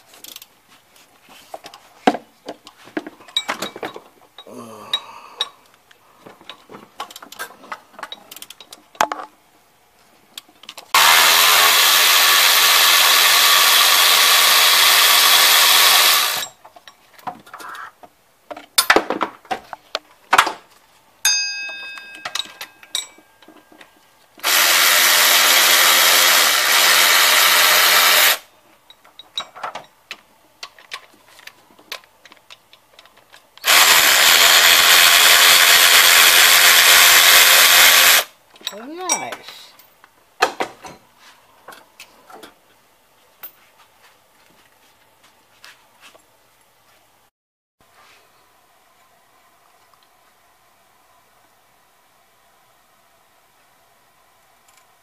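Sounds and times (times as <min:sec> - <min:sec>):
metal tool clinks: 0:03.3 - 0:05.1, 0:21.3 - 0:23.5
power drill spinning: 0:10.9 - 0:16.6, 0:24.4 - 0:28.5, 0:33.6 - 0:38.3.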